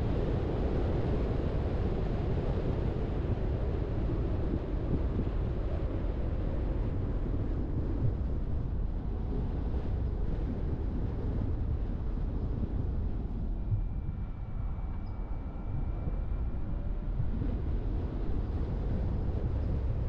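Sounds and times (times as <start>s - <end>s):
car tyre and wind rumble: 0.0s - 20.0s
faint thin whine: 12.0s - 20.0s.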